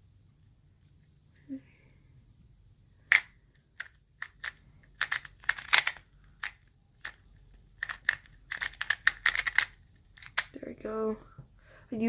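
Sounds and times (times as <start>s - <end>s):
plastic puzzle cube clacks: 3.1s - 10.6s.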